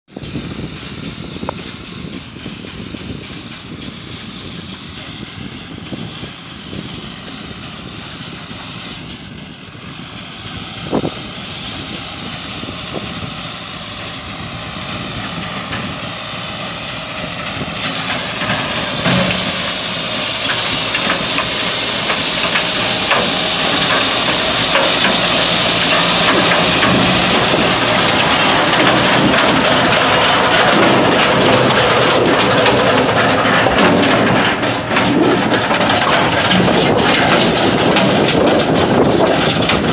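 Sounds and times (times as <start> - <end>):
tractor engine under load: 0.1 - 39.9
stones clattering in machine: 18.0 - 39.9.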